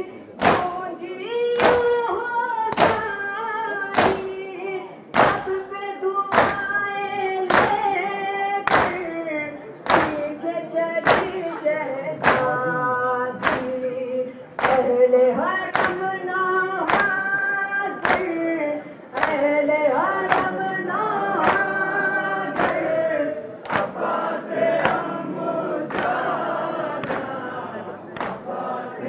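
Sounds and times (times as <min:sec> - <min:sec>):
chest beating slaps: 0:00.4 - 0:00.8, 0:01.6 - 0:02.0, 0:02.7 - 0:03.2, 0:03.9 - 0:04.4, 0:05.1 - 0:05.6, 0:06.3 - 0:06.7, 0:07.5 - 0:07.9, 0:08.7 - 0:09.1, 0:09.8 - 0:10.3, 0:11.0 - 0:11.4, 0:12.2 - 0:12.6, 0:13.4 - 0:13.8, 0:23.6 - 0:24.1
crowd chanting in chorus: 0:09.7 - 0:13.9, 0:19.1 - 0:29.0.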